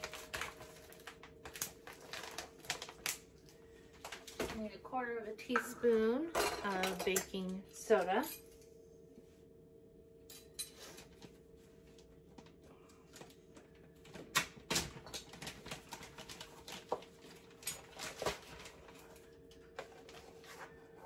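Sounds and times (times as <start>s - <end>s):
plastic bag crinkling: 0.0s - 4.4s, 15.0s - 19.1s.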